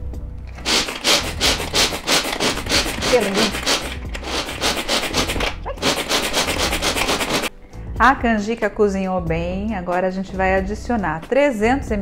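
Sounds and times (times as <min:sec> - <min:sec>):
food chopper blades scraping nuts: 0:00.5 - 0:07.5.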